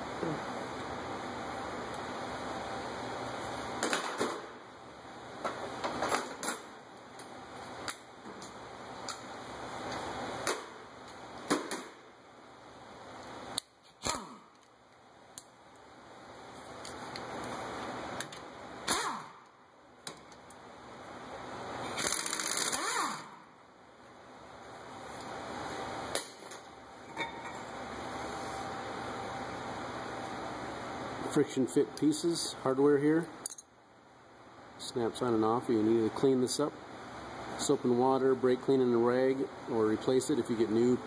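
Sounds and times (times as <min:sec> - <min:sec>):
metal tools clicking and clanking: 0:27.1 - 0:27.6, 0:33.4 - 0:33.7.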